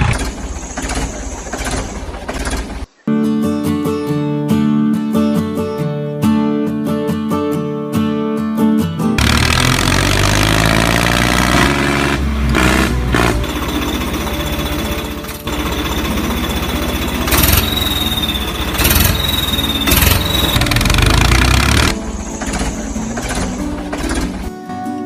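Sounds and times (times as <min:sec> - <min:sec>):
tractor engine chugging: 0:00.0 - 0:03.0, 0:12.3 - 0:24.5.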